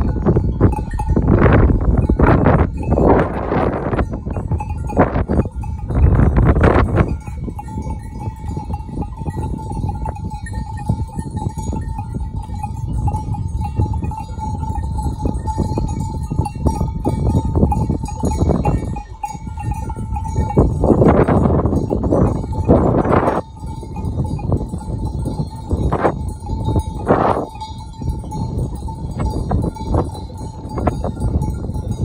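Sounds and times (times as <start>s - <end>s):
sheep bells clanking: 0.0s - 32.0s
steady low rumble: 0.0s - 32.0s.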